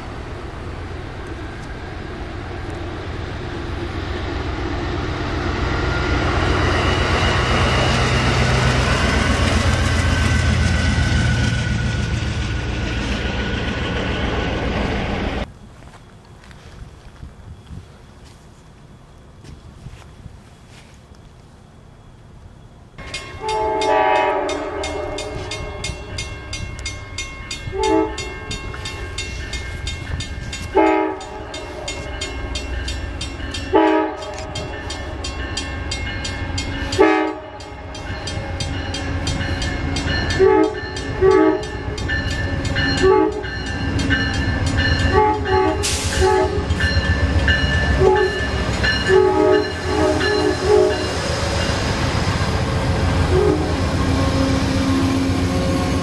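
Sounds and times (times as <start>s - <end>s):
train rumble: 0.0s - 56.0s
train air horn blasts: 23.4s - 26.1s, 27.7s - 28.5s, 30.6s - 32.2s, 33.7s - 34.9s, 36.9s - 37.8s, 40.3s - 42.0s, 42.8s - 43.6s, 45.0s - 46.7s, 47.9s - 51.2s, 53.3s - 56.0s.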